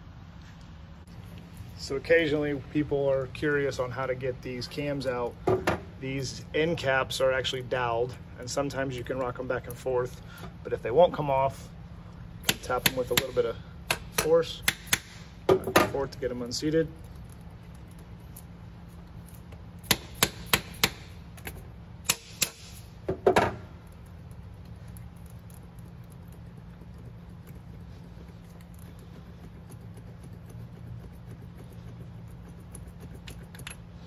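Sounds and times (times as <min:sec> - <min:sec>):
low steady hum: 0:00.0 - 0:34.0.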